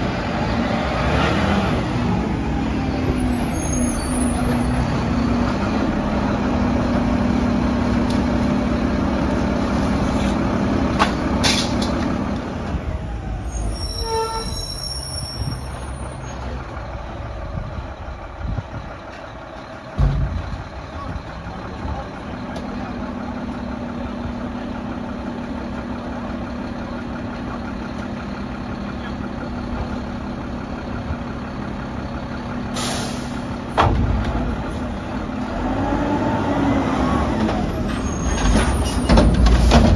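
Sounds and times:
truck diesel engine running: 0.0s - 13.9s, 14.6s - 39.9s
thud: 20.0s - 20.5s, 33.7s - 34.4s
air brake hiss: 32.7s - 33.5s.

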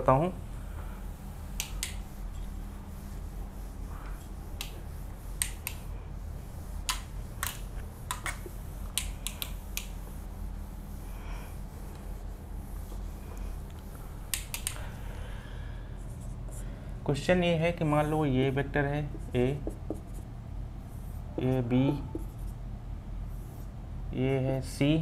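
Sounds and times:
steady low hum: 0.0s - 25.0s
eraser rubbing whiteboard: 1.2s - 13.6s, 19.0s - 22.6s, 23.3s - 23.8s.

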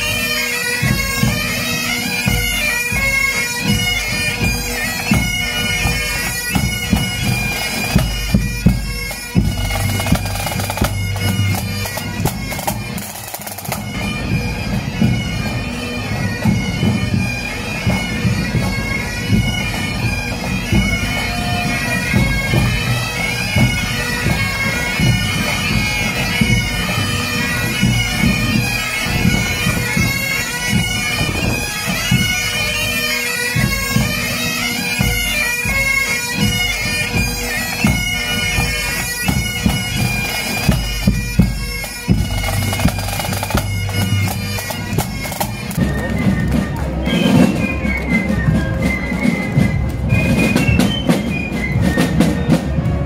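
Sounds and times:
bagpipes playing a tune: 0.0s - 53.0s
drums beating: 0.8s - 33.0s, 35.0s - 53.0s.

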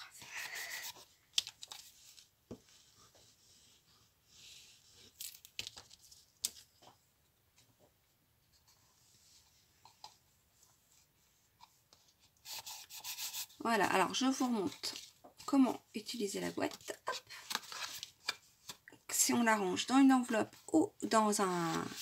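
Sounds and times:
paper rustling and scraping: 16.7s - 18.4s, 21.4s - 22.0s.

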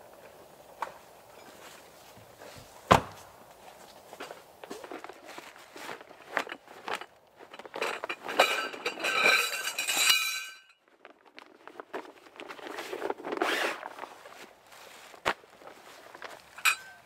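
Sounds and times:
footsteps in dry leaves: 1.0s - 7.5s, 10.9s - 17.0s
metal tent poles clattering: 4.2s - 17.0s.

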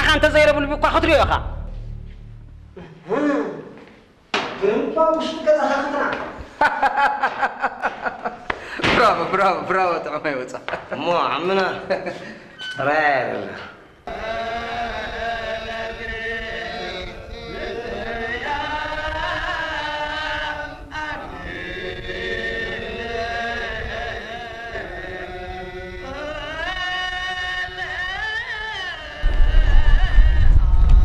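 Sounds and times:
person singing chant-like melody: 14.1s - 31.0s.

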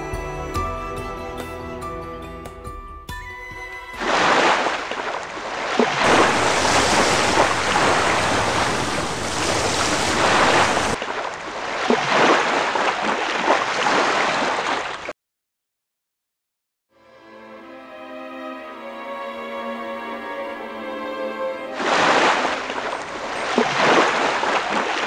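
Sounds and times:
rough sea waves surging: 4.0s - 14.9s, 21.6s - 25.0s.

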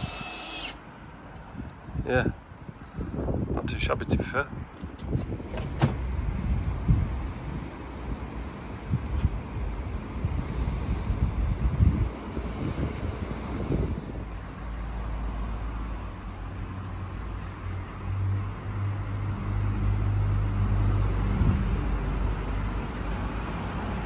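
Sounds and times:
wind noise on microphone: 1.4s - 14.5s, 20.8s - 24.0s
motor vehicle engine rumble: 4.7s - 14.6s.

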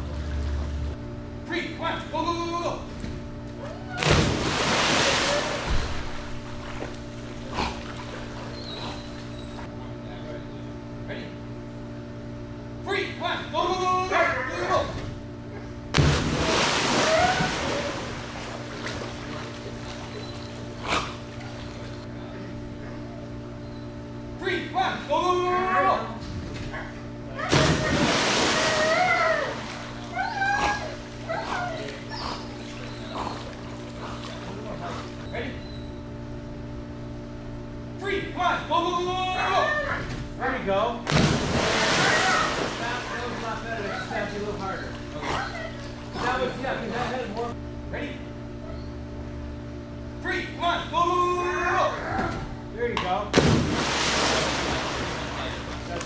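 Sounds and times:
steady hum: 0.0s - 56.0s
dog whining: 3.6s - 4.0s, 8.5s - 9.6s, 28.6s - 34.4s, 39.5s - 40.2s, 43.8s - 44.3s, 45.2s - 46.4s, 48.6s - 49.0s
dog splashing into water: 4.0s - 6.9s, 16.0s - 20.2s, 27.5s - 30.0s, 41.1s - 43.5s, 53.4s - 55.6s.

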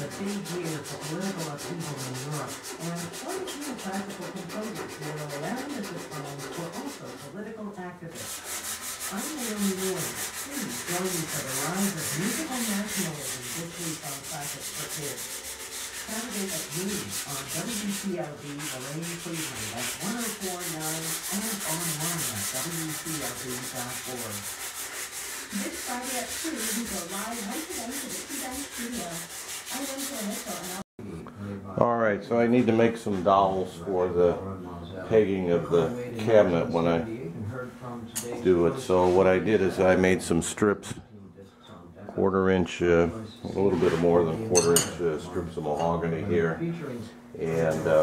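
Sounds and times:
sandpaper rubbing on wood: 0.0s - 7.4s, 8.1s - 30.8s.

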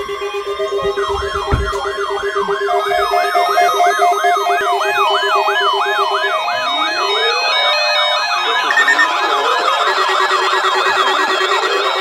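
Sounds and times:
warbling siren-like alert tone: 0.0s - 12.0s
fast-pulsing low beep: 0.1s - 12.0s
higher stepped beeps: 8.5s - 11.6s.

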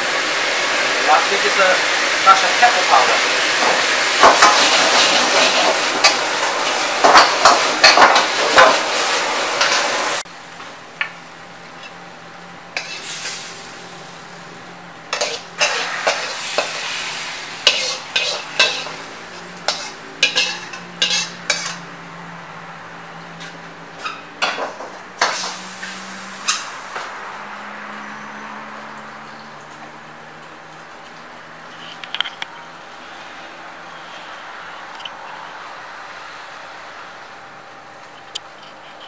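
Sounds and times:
food sizzling in a wok: 0.0s - 10.5s, 12.7s - 21.8s, 24.5s - 27.6s
metal ladle clanking against wok: 17.7s - 19.0s, 19.7s - 21.8s
metal scrapes and clinks: 19.7s - 21.8s.

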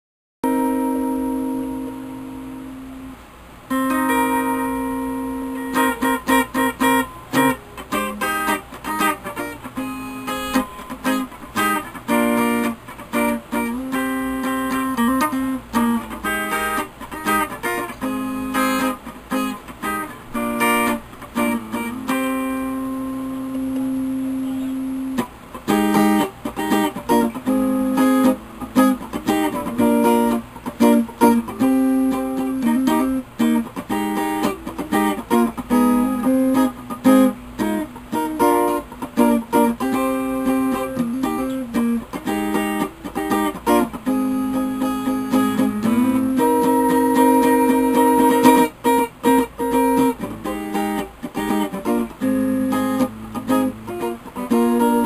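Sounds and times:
electric guitar picked notes: 0.4s - 55.0s.

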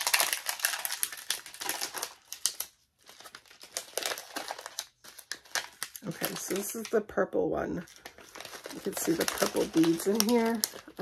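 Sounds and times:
plastic packaging crinkling: 0.0s - 7.0s, 7.8s - 11.0s.

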